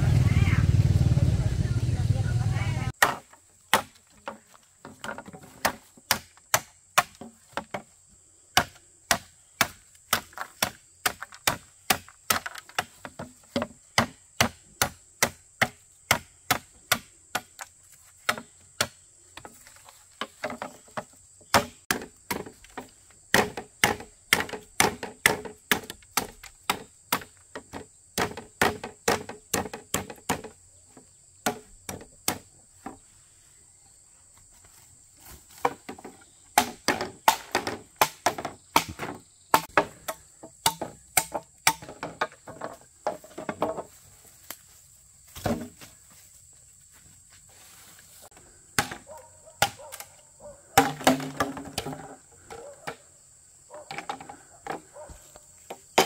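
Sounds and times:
chopping strikes: 23.3 - 27.3, 36.6 - 42.1, 48.8 - 49.0, 50.8 - 52.1.

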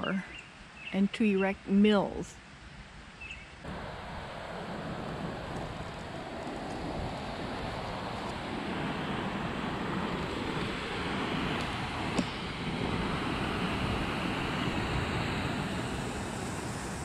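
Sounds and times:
wind on microphone: 3.6 - 17.0
water rushing over dam: 3.7 - 17.0.

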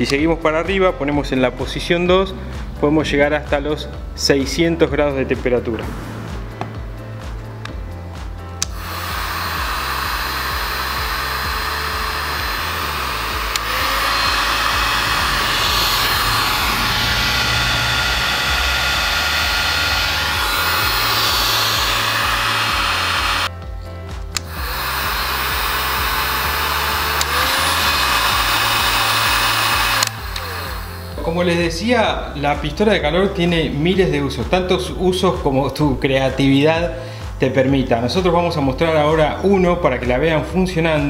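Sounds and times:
heat gun fan blowing: 8.6 - 23.5, 24.3 - 31.8.

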